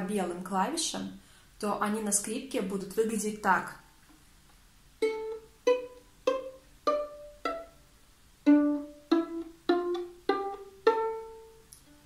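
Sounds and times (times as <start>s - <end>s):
violin plucked pizzicato: 5.0s - 12.0s.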